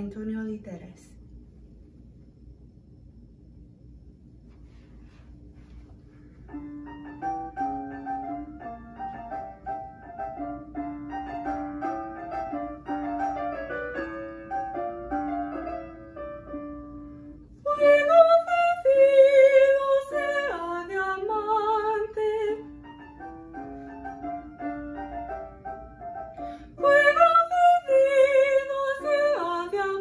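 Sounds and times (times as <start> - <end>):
keyboard accompaniment: 6.5 - 17.5, 22.0 - 27.8
woman singing with vibrato: 17.7 - 22.7, 26.8 - 30.0.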